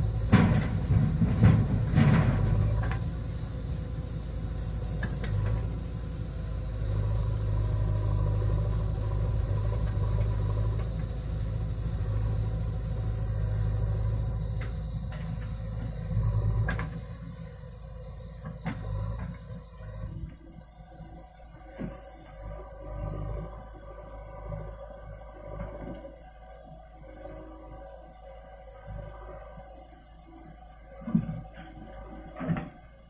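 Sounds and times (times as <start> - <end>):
diesel engines humming: 0.0 - 33.0
bucket knocking and clattering: 0.2 - 3.0.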